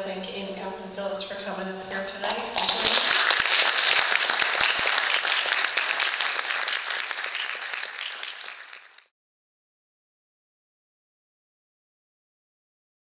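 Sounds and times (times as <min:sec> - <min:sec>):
audience applauding: 0:02.6 - 0:09.1.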